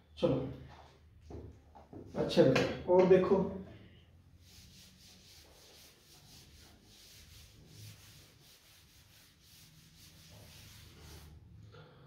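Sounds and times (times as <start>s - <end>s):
duster swishing on chalkboard: 4.2s - 11.6s.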